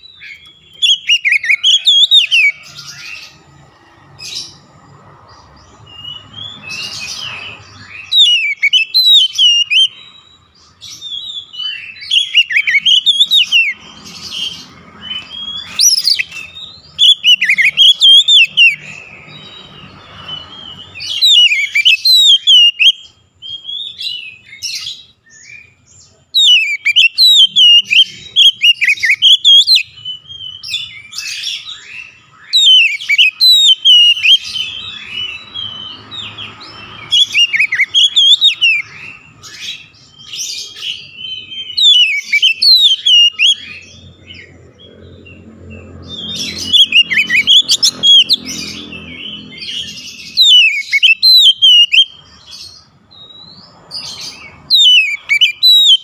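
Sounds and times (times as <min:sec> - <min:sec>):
bird singing whistles and twitters: 0:00.0 - 0:56.0.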